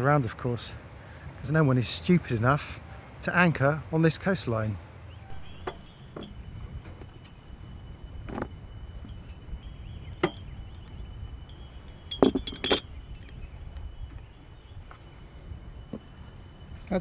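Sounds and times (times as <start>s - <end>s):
cicadas droning: 0.0s - 17.0s
anchor chain clanking: 5.3s - 7.4s, 9.1s - 10.8s, 11.4s - 13.0s.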